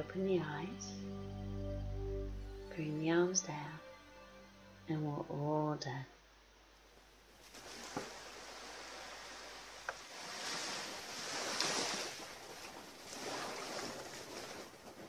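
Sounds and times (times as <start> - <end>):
small waves washing onto shore: 7.4 - 15.0.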